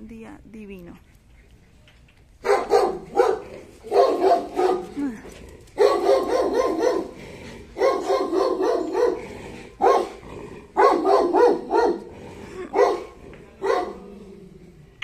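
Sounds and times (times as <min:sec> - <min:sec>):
dog barking: 0:02.4 - 0:05.0, 0:05.8 - 0:07.2, 0:07.8 - 0:10.2, 0:10.8 - 0:12.1, 0:12.7 - 0:14.0.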